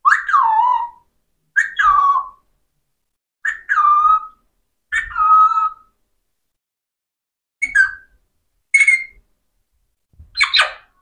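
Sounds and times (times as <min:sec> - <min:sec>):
parakeet whistled calls: 0:07.6 - 0:08.1, 0:08.7 - 0:09.2, 0:10.4 - 0:10.9.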